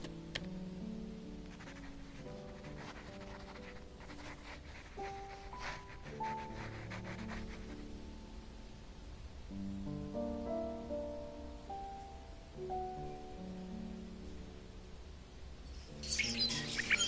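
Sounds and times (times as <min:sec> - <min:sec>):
gentle background music: 0:00.0 - 0:17.0
pen scratching on paper: 0:01.6 - 0:07.8, 0:16.0 - 0:17.0.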